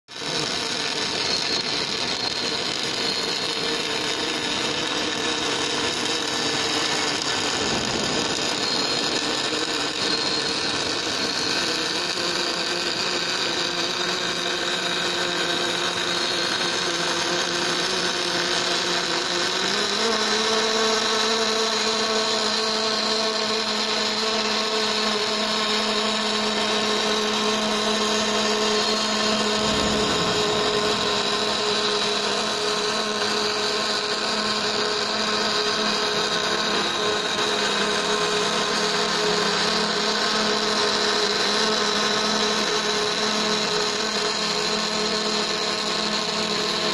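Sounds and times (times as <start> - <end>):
welding arc hiss: 0.2 - 17.8, 23.8 - 37.2
machine hum: 3.8 - 12.8, 25.0 - 35.2.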